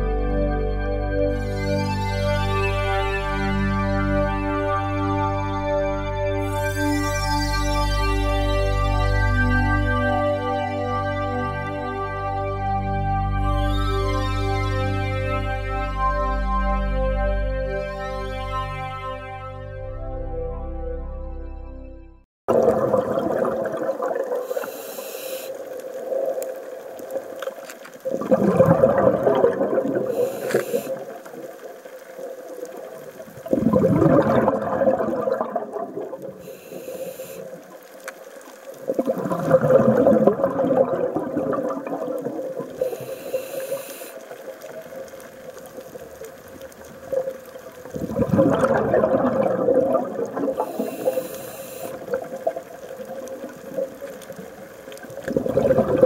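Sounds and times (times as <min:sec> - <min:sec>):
exhaled bubbles rushing: 0:22.5 - 0:24.7, 0:25.6 - 0:36.8, 0:38.6 - 0:56.0
regulator inhalation hisses: 0:30.2 - 0:31.0, 0:36.4 - 0:37.5, 0:42.8 - 0:44.2, 0:50.6 - 0:52.0.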